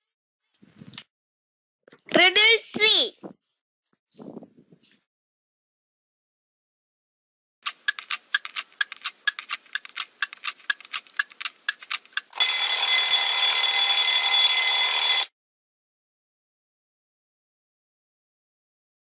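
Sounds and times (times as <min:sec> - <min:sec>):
rapid clock ticking: 0:07.6 - 0:12.4
alarm ringing: 0:12.3 - 0:15.3.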